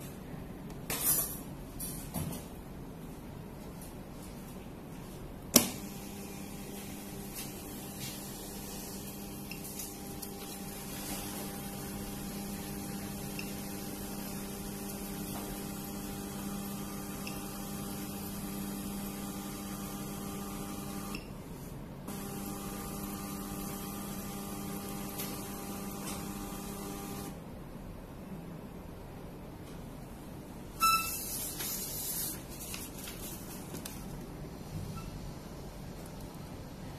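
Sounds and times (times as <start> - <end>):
printer motor humming whine: 5.8 - 21.2, 22.1 - 27.4.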